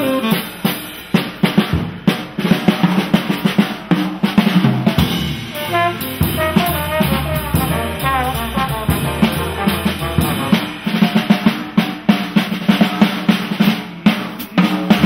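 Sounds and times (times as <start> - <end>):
bass: 0.0 - 12.1, 13.5 - 15.0
drum kit snare and bass drum: 0.0 - 15.0
trombone sliding notes: 5.2 - 10.9.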